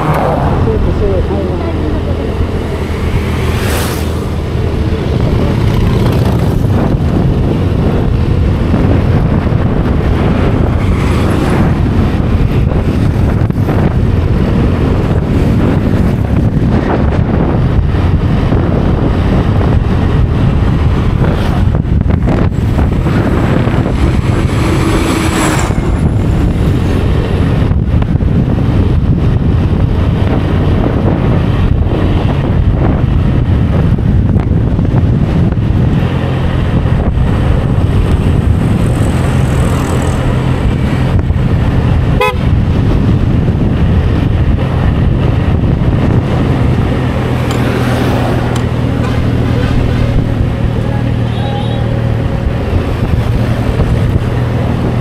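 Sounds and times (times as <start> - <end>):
scooter engine: 0.0 - 16.5
road noise: 0.0 - 55.0
wind buffeting microphone: 0.0 - 55.0.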